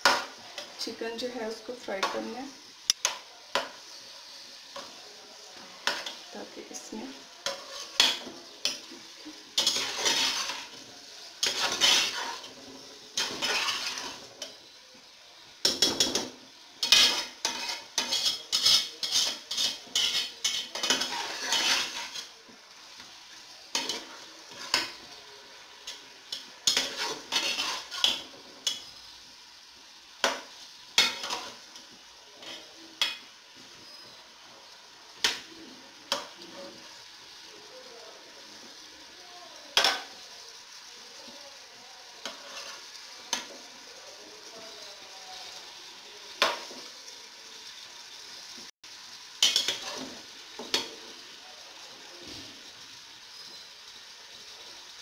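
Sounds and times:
frying sizzle: 0:00.0 - 0:55.0
metal turner scraping a pot: 0:07.4 - 0:08.8, 0:09.6 - 0:10.8, 0:11.4 - 0:12.6, 0:13.2 - 0:14.2, 0:16.8 - 0:22.3, 0:26.6 - 0:28.9.

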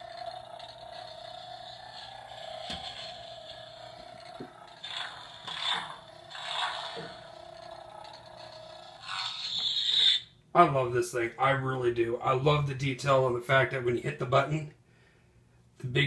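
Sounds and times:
toy lightsaber electronic hum: 0:00.0 - 0:10.4.

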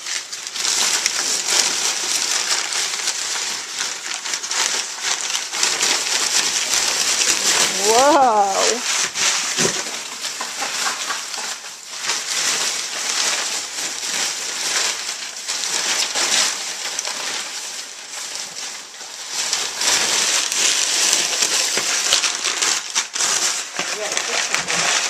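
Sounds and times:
paper crinkling and rustling: 0:00.0 - 0:25.0.

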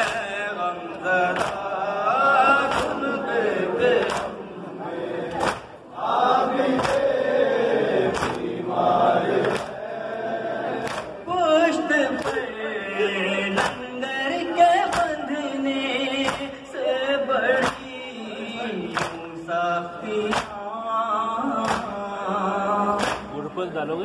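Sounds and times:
man reciting into a microphone: 0:00.0 - 0:05.8, 0:11.0 - 0:24.0
men chanting in chorus: 0:00.0 - 0:23.8
chest-beating slaps: 0:01.3 - 0:01.7, 0:02.6 - 0:03.0, 0:04.0 - 0:04.4, 0:05.3 - 0:05.8, 0:06.7 - 0:07.1, 0:08.1 - 0:08.5, 0:10.8 - 0:11.2, 0:12.2 - 0:12.4, 0:13.6 - 0:13.8, 0:14.9 - 0:15.2, 0:16.2 - 0:16.6, 0:17.6 - 0:17.9, 0:18.9 - 0:19.3, 0:20.3 - 0:20.6, 0:21.6 - 0:22.0, 0:23.0 - 0:23.3.

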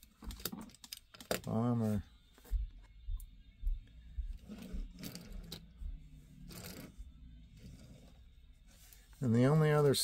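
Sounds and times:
soft low thumps: 0:02.4 - 0:06.3.

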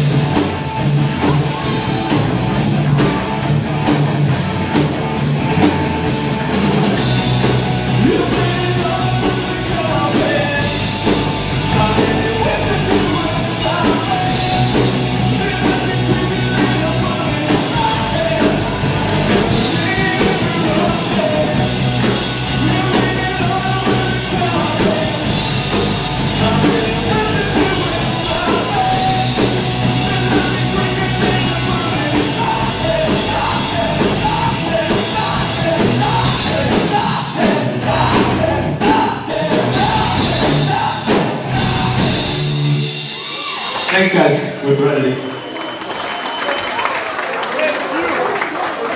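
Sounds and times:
drum kit: 0:00.0 - 0:45.0
electric bass: 0:00.0 - 0:45.1
man singing lead vocals: 0:07.5 - 0:42.5.

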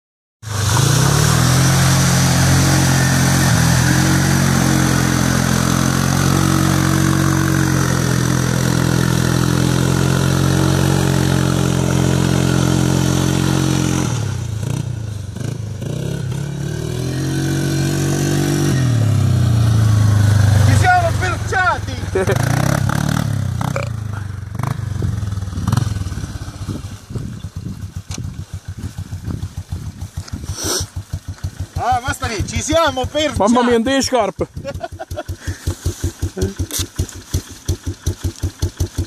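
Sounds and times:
atv engine running: 0:00.5 - 0:39.0.

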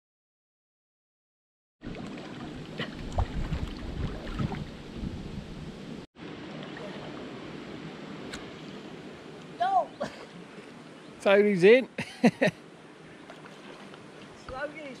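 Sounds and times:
wind buffeting microphone: 0:01.8 - 0:06.0.

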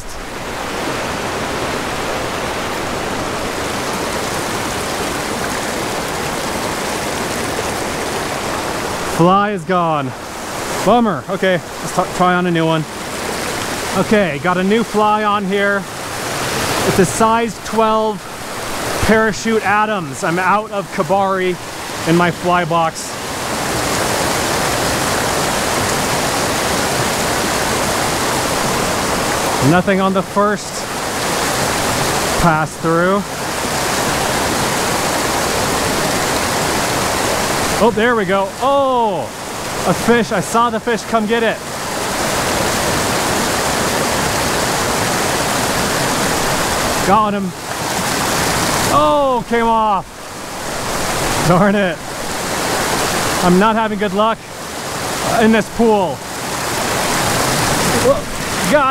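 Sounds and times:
creek rushing over rocks: 0:00.0 - 0:58.9.

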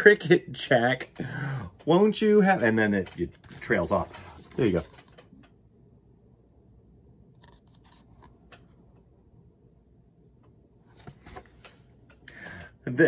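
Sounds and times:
faint room hum: 0:00.0 - 0:13.0
book clicks and rustles: 0:10.9 - 0:12.1.

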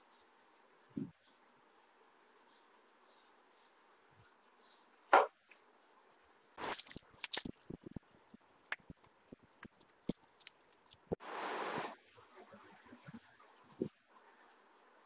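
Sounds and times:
plastic bag crinkling: 0:06.6 - 0:07.8.

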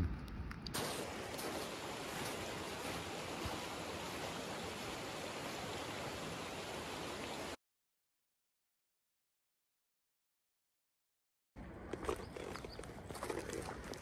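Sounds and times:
stream water rushing: 0:00.8 - 0:07.6.

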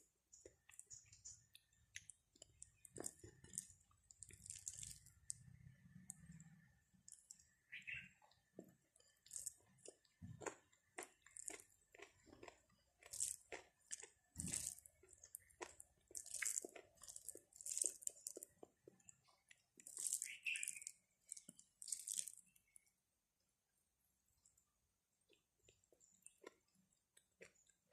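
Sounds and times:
fingers squeezing rice: 0:00.4 - 0:06.2, 0:08.4 - 0:22.7
chewing: 0:00.4 - 0:22.9, 0:25.2 - 0:27.9.

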